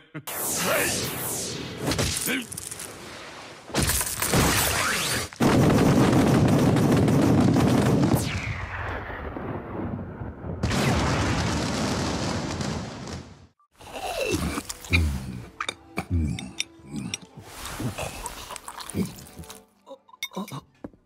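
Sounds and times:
crackling burst: 0.3 - 3.4, 4.3 - 13.6
loud rumbling explosion: 5.5 - 13.3.

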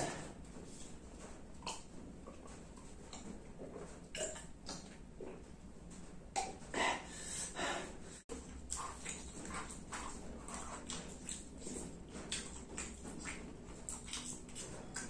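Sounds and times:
man swallowing: 4.1 - 4.9
man chewing: 8.3 - 15.0.

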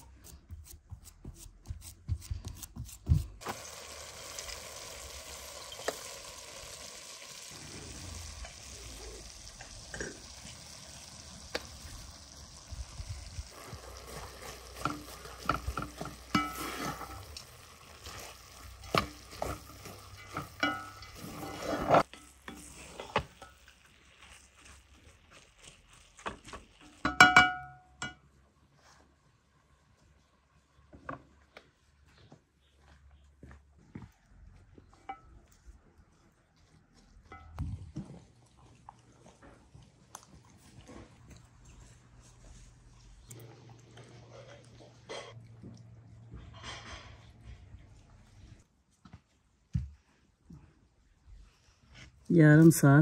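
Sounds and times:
hands working dough: 0.0 - 3.6, 13.6 - 27.6
meat sizzling in a pot: 3.4 - 28.2
wooden spatula scraping a pot: 13.4 - 27.3.

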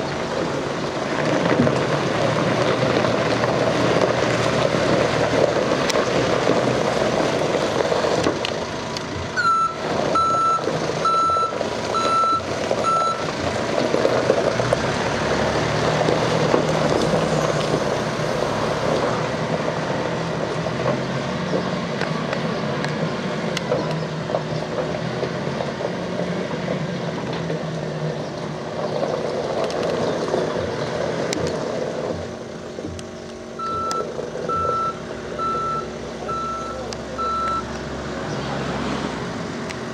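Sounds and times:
diesel engine revving: 0.0 - 39.9
reversing alarm beeping: 9.4 - 13.2, 33.6 - 37.7.

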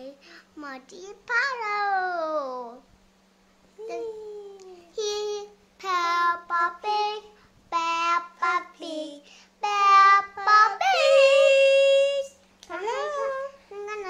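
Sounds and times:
child singing: 5.0 - 12.3.

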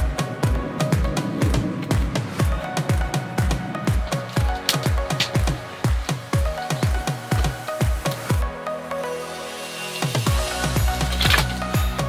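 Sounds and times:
deep kick drums: 0.0 - 8.5.

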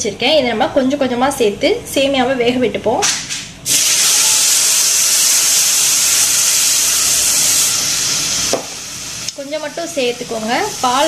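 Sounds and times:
milk hissing in hot pan: 3.7 - 11.0.

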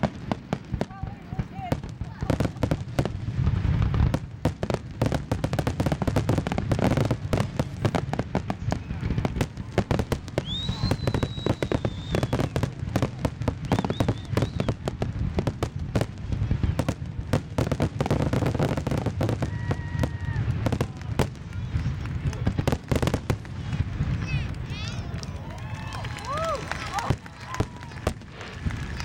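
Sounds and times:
fireworks bangs and crackles: 0.0 - 29.0
firework whistles: 7.3 - 15.0.

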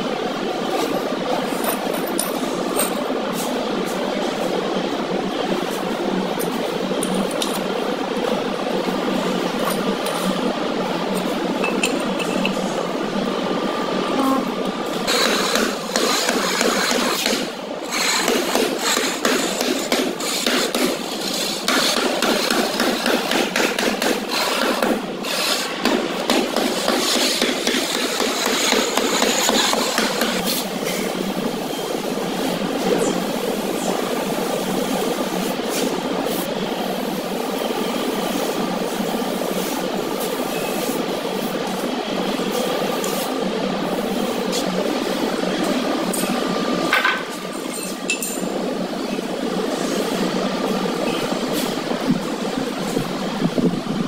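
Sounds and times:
noisy background: 0.0 - 54.0
steady background noise: 0.0 - 54.0
tools clinking on marble tiles: 47.7 - 48.4.

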